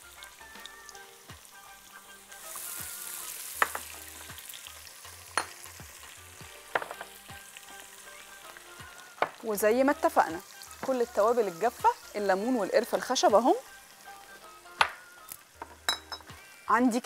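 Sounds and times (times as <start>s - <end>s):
onion sizzling in hot oil: 0.0s - 17.0s
knocks against a pot: 3.6s - 3.9s, 6.7s - 7.1s.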